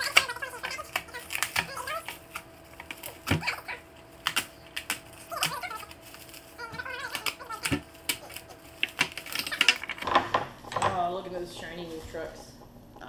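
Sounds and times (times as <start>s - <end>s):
plastic packaging crinkling: 0.0s - 10.1s.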